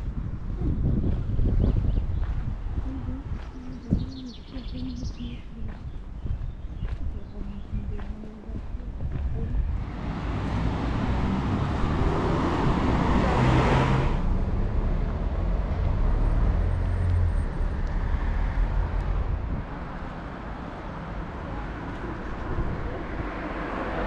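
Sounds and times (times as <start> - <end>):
low traffic rumble: 0.0 - 24.0
car passing: 9.6 - 24.0.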